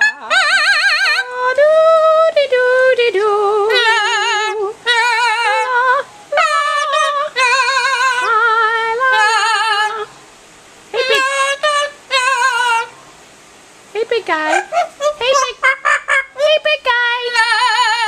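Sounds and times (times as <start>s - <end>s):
parrot singing: 0.0s - 2.1s, 3.5s - 10.1s, 11.0s - 13.0s, 14.5s - 18.0s.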